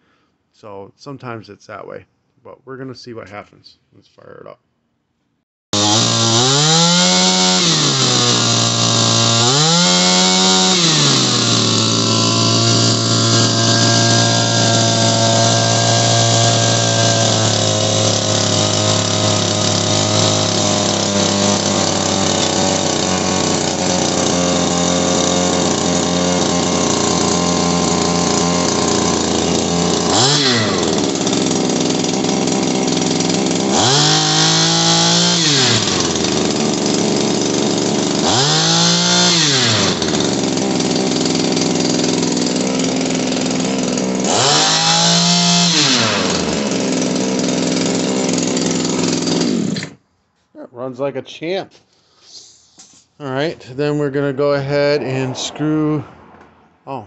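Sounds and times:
small two-stroke engine revving: 0:05.7 - 0:50.0.

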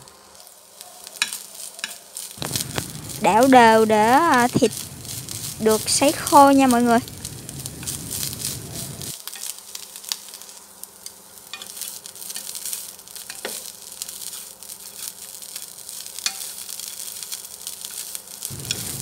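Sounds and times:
meat sizzling in a frying pan: 0:00.0 - 0:19.0
chopsticks clicking against pan: 0:11.0 - 0:12.6, 0:13.2 - 0:13.6, 0:16.2 - 0:16.6.

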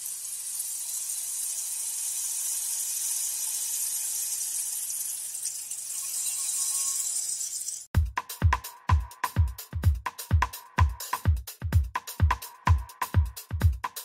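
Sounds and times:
high-pitched hiss: 0:00.0 - 0:07.9.

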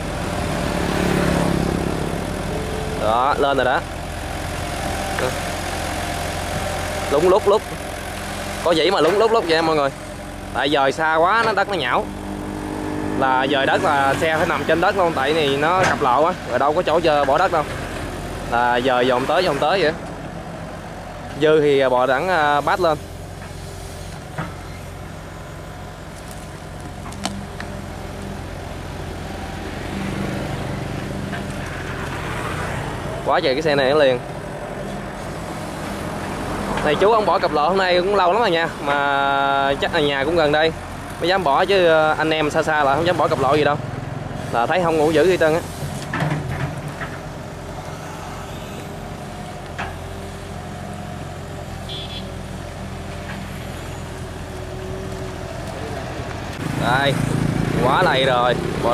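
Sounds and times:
excavator diesel engine running: 0:00.0 - 0:58.9.

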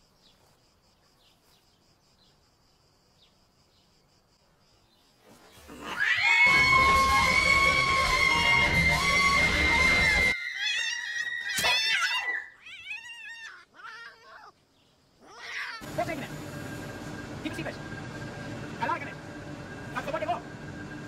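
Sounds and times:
cat screeching: 0:05.8 - 0:14.6, 0:15.2 - 0:15.9.

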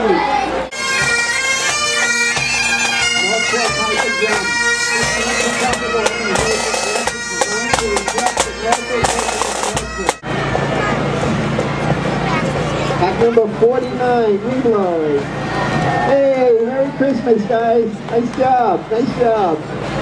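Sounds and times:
bagpipes playing: 0:00.2 - 0:11.0.

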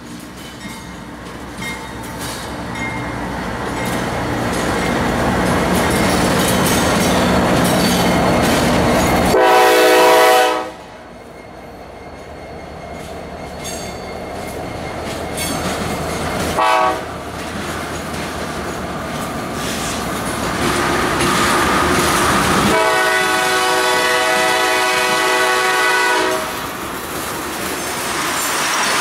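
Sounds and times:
diesel locomotive passing: 0:00.0 - 0:29.0
train wheels clattering on rails: 0:00.0 - 0:29.0
train horn: 0:09.3 - 0:10.9, 0:16.5 - 0:17.2, 0:22.7 - 0:26.6.

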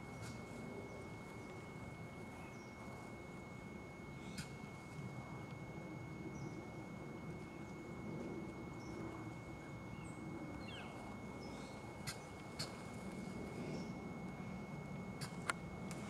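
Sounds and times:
small birds chirping: 0:02.3 - 0:02.8, 0:09.6 - 0:14.0.

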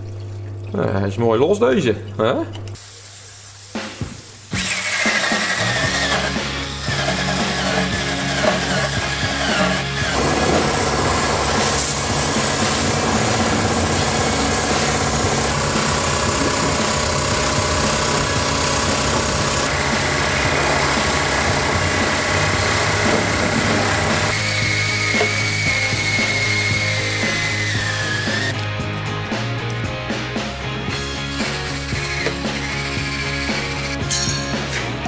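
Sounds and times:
background music: 0:03.8 - 0:35.0
power tool wire brush whine: 0:04.6 - 0:28.6, 0:31.2 - 0:34.0.

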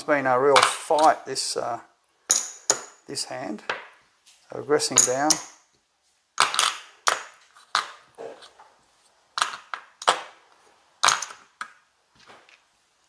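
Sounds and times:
casino chips clacking: 0:06.4 - 0:08.1, 0:11.0 - 0:11.8.

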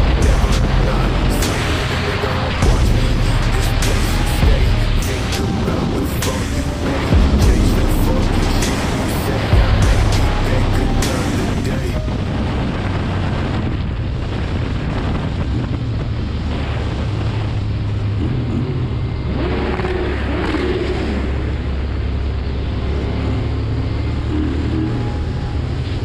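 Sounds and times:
wind noise on microphone: 0:00.0 - 0:26.0
motorcycle engine cruising: 0:12.7 - 0:26.0.

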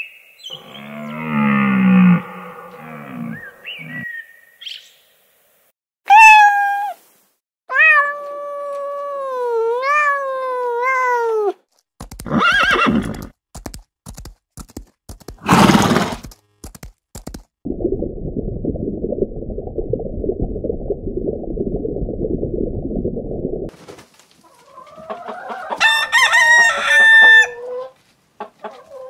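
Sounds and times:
hoof clicks: 0:11.8 - 0:17.5
horse whinnying: 0:12.2 - 0:13.3.

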